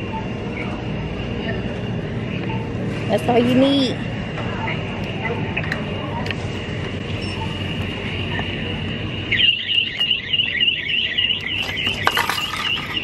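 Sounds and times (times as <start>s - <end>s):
high-pitched electronic alarm tone: 7.1s - 12.0s.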